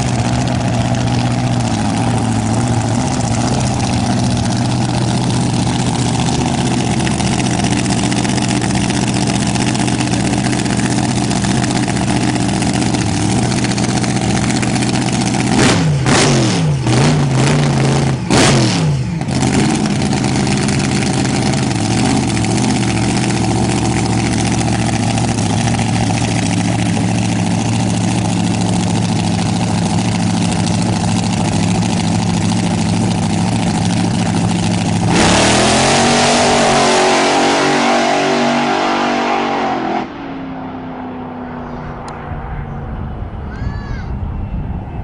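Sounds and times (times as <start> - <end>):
dragster engine idling: 0.0 - 36.0
dragster accelerating at full throttle: 0.0 - 43.4
distant engine drone: 0.0 - 45.0.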